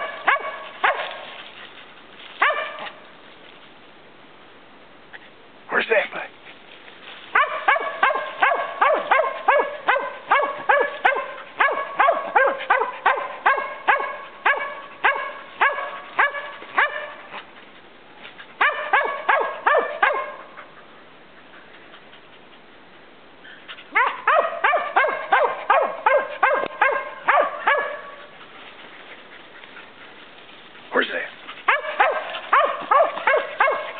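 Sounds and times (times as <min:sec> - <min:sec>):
dog barking sharply: 0:00.0 - 0:01.2, 0:02.4 - 0:03.0, 0:07.3 - 0:17.2, 0:18.6 - 0:20.5, 0:24.0 - 0:28.2, 0:31.7 - 0:33.9.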